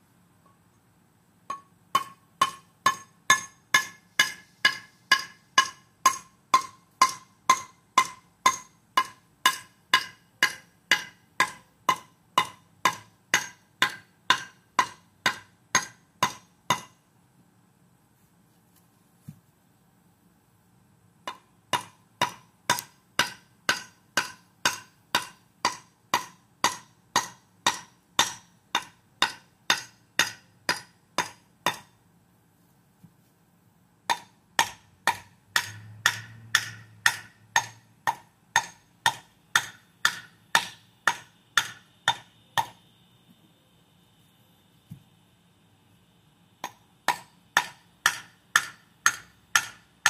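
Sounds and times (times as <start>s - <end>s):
hammer tapping concrete block: 1.5s - 17.0s, 21.2s - 31.9s, 34.1s - 42.8s, 46.6s - 49.8s.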